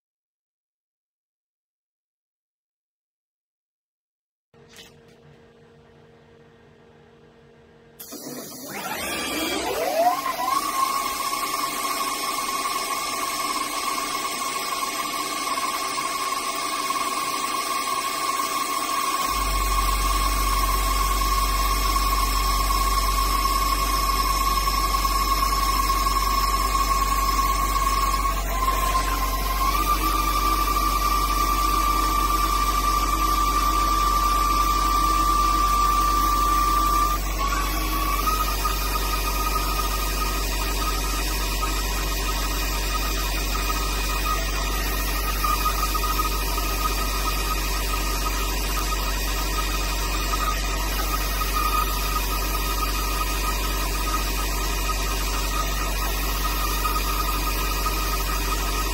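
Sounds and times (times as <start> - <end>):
low steady hum: 4.6 - 8.1
lathe spindle motor whine: 8.0 - 58.9.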